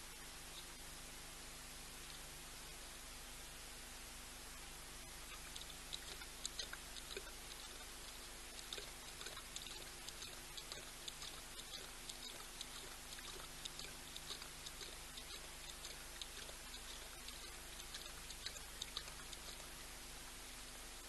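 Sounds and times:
lion lapping water: 0:05.1 - 0:20.6.

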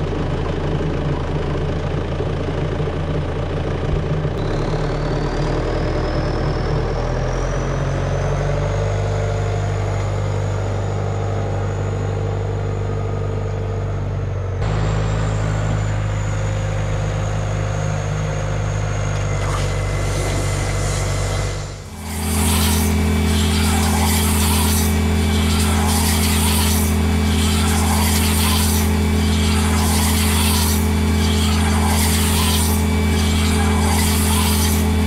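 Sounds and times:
tractor engine running: 0:00.0 - 0:35.0
bale wrapper rhythmic rasping: 0:19.4 - 0:35.0.

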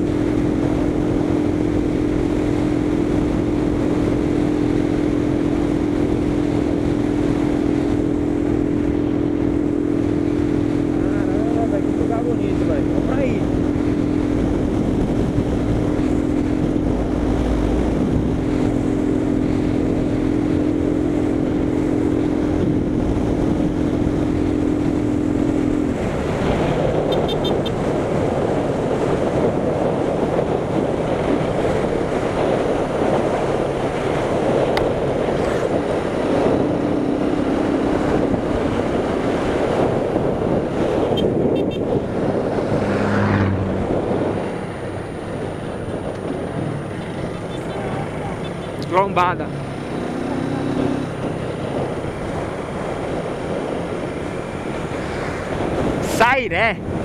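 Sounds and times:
motorcycle engine running: 0:00.0 - 0:42.7
wind rushing over microphone: 0:00.0 - 0:57.0.

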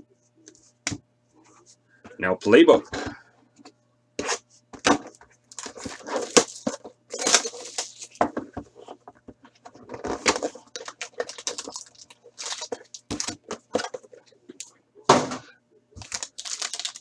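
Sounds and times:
cardboard packaging rustling: 0:05.5 - 0:08.2, 0:09.9 - 0:13.6, 0:16.0 - 0:17.0.

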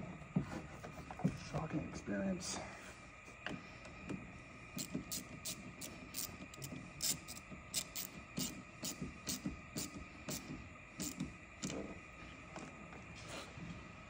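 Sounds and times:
faint high hum: 0:00.0 - 0:14.0
tools clicking and ticking: 0:04.8 - 0:10.4.

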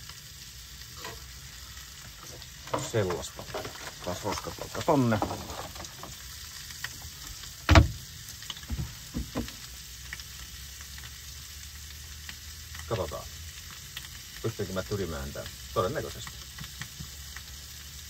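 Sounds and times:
food sizzling in a frying pan: 0:00.0 - 0:18.0
knocks on a pan: 0:07.7 - 0:08.0, 0:08.7 - 0:09.6.

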